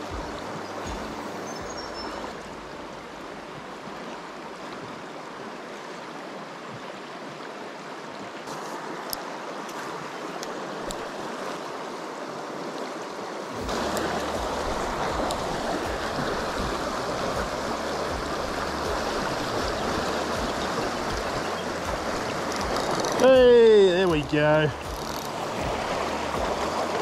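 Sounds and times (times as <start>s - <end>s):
river water rushing over stones: 0.0s - 27.0s.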